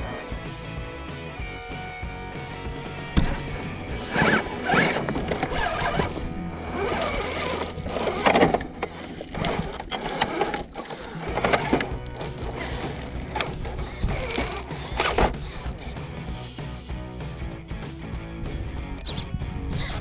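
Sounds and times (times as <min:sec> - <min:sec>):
background music: 0:00.0 - 0:20.0
electric motor and gears whirring: 0:02.5 - 0:16.4, 0:18.8 - 0:20.0.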